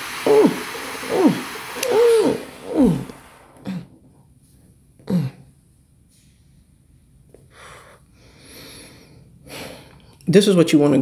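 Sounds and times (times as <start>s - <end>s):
woman humming with closed mouth: 0.3s - 3.9s.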